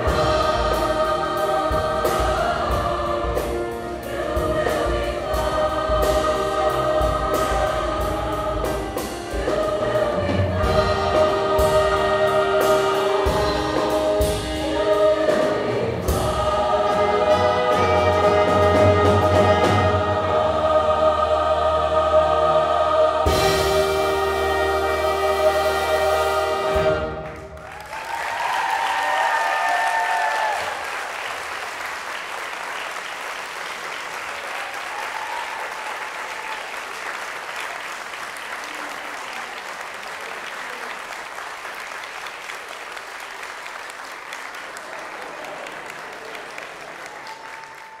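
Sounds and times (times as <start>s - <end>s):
choir and band holding a chord: 0.0s - 27.6s
audience applause: 27.1s - 48.0s
audience whoops and cheers: 27.3s - 31.5s, 34.3s - 37.2s, 44.9s - 48.0s.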